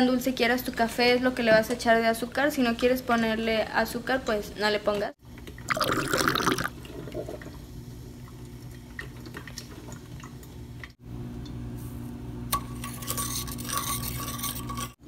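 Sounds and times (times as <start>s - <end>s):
metal spoon scraping in pot: 12.5s - 15.0s.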